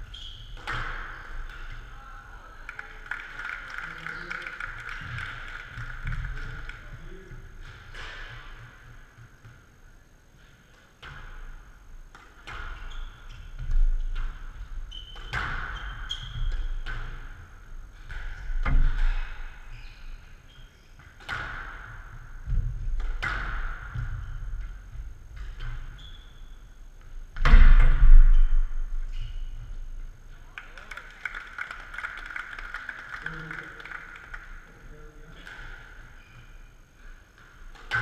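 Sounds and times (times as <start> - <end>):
shoe squeaks on court floor: 0.0 - 1.7, 12.7 - 13.5, 14.9 - 16.8, 19.7 - 21.0, 25.9 - 26.7, 36.1 - 36.7.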